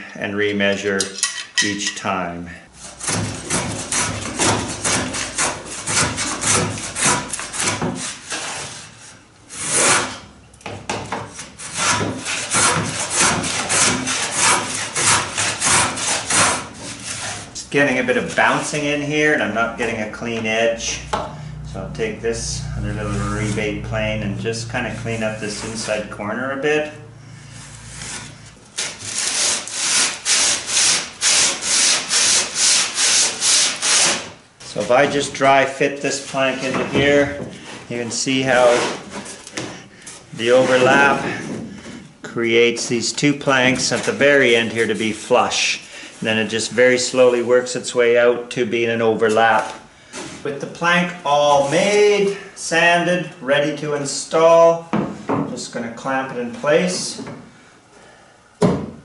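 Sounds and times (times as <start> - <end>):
sanding block rasping on wood: 2.8 - 9.0, 11.4 - 17.5, 28.8 - 34.3
hand plane scraping wood: 2.8 - 10.2, 11.3 - 17.6, 27.5 - 35.2, 36.2 - 42.0.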